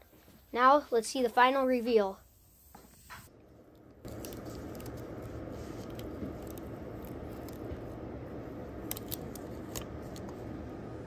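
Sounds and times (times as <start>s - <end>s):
steady low noise: 3.3s - 11.0s
masking tape peeling: 4.0s - 7.9s, 8.8s - 10.3s.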